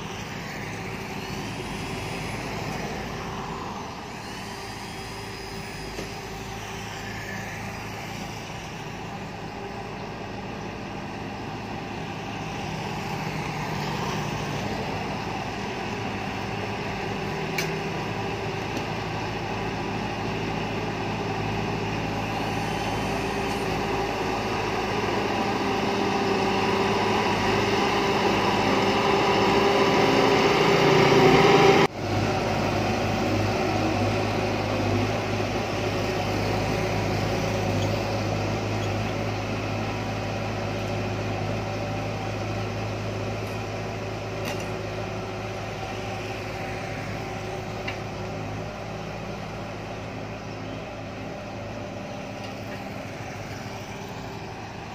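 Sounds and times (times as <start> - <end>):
bulldozer diesel engine running: 0.0 - 54.9.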